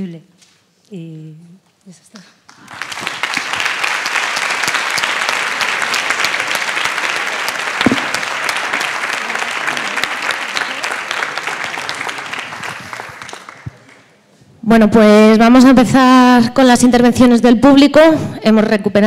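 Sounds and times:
audience applauding: 2.5s - 14.2s
low knock: 7.8s - 8.3s.

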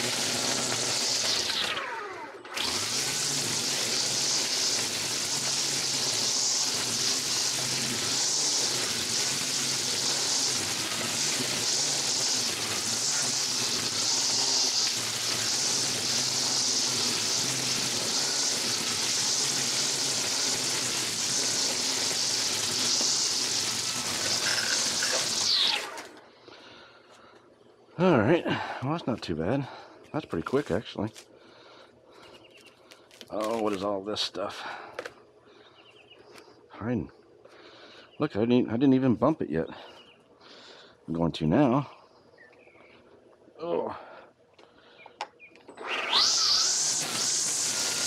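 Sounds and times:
string trimmer cutting weeds: 0.0s - 26.2s, 32.5s - 33.9s, 45.6s - 48.0s.

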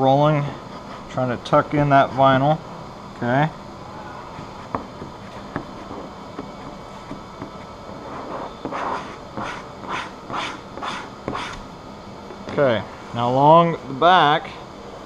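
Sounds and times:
steady background hum: 0.0s - 15.0s
squeegee scraping strokes: 8.0s - 11.6s.

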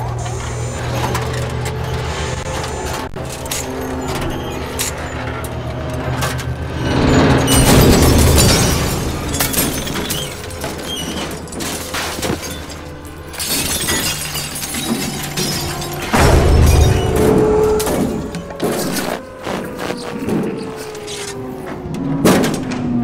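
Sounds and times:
film music: 0.0s - 23.0s
loud crashes: 6.0s - 20.7s
glass shattering: 7.0s - 19.0s.

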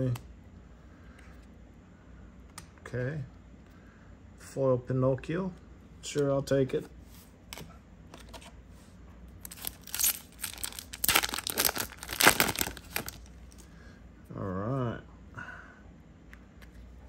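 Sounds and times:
plastic wrapper tearing and crinkling: 9.4s - 13.6s.

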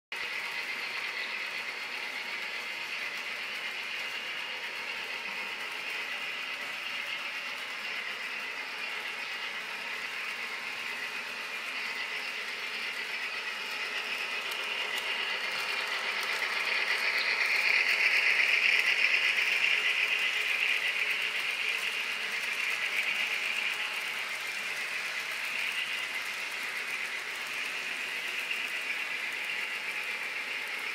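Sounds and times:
model train motor whirring: 0.2s - 30.9s
rattling wheels on track: 0.2s - 30.9s.

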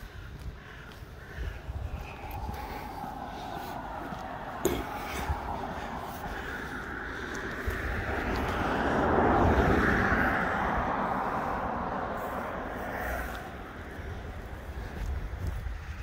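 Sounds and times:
car passing by: 2.0s - 15.5s.

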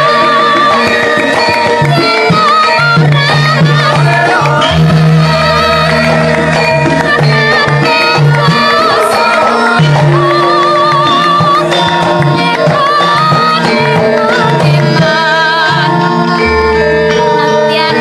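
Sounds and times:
gamelan ringing tones: 0.0s - 18.0s
woman singing ornamented line: 0.0s - 18.0s.

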